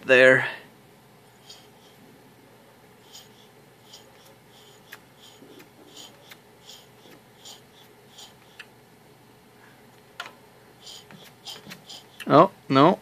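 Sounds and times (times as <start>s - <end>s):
hand primer pump puffing: 3.0s - 8.7s, 10.8s - 12.3s.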